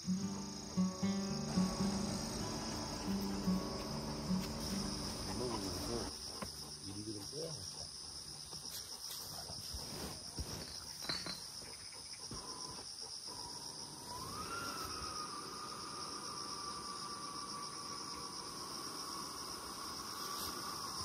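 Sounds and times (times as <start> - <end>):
guitar music: 0.0 - 6.1
insects chirring: 0.0 - 21.0.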